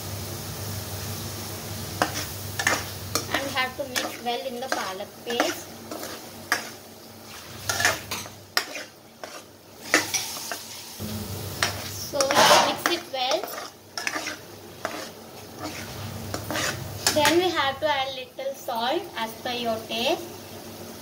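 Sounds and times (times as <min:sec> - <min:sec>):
paste sizzling in oil: 0:00.0 - 0:21.0
metal spatula scraping pan: 0:02.0 - 0:17.6.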